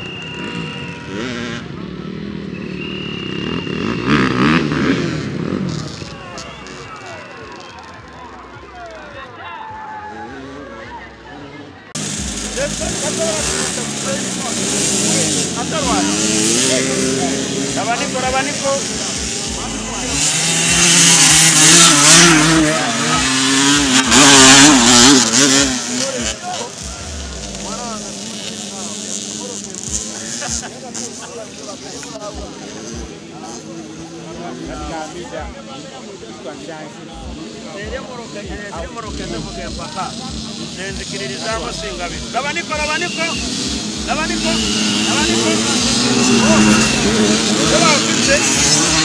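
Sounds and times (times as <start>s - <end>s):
dirt bike engines revving: 0.0s - 49.0s
high steady tone: 41.6s - 49.0s.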